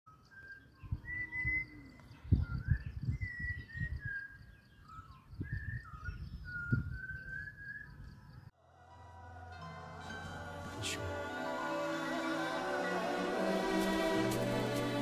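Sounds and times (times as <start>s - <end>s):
thrush singing clear whistles: 0.1s - 8.4s.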